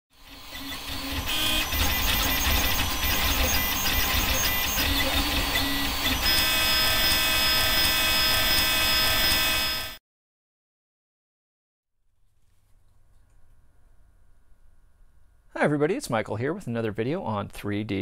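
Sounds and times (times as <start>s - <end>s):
printer stepper motors whining: 0.1s - 10.0s.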